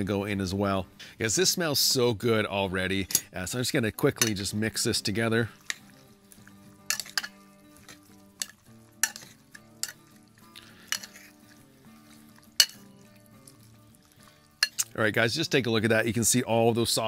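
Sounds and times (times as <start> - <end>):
tongs tossing wet food: 4.0 - 15.1
tongs clinking against glass: 5.5 - 15.0.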